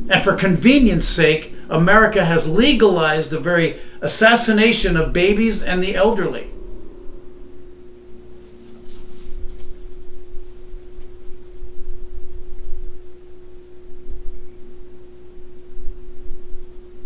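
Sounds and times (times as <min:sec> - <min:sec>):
faint low rumble: 0:00.0 - 0:17.0
steady electrical hum tone: 0:00.0 - 0:17.0
soft rustle: 0:08.2 - 0:11.4.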